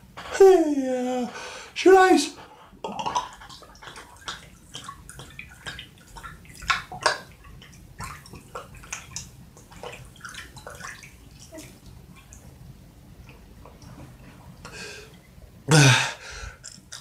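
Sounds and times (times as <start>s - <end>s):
liquid glugging from bottle: 2.9s - 12.4s.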